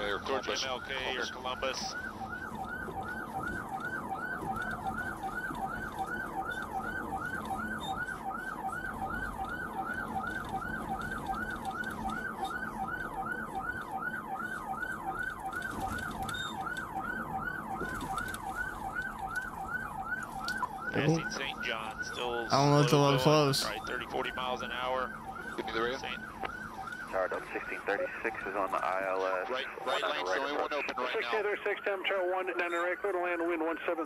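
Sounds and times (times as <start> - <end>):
police siren yelping: 0.0 - 34.0.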